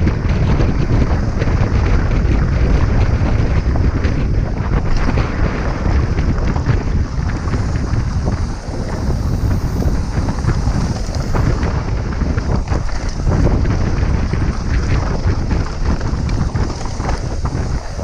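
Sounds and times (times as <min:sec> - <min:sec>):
mountain bike rattling on gravel: 0:00.0 - 0:18.0
wind buffeting microphone: 0:00.0 - 0:18.0.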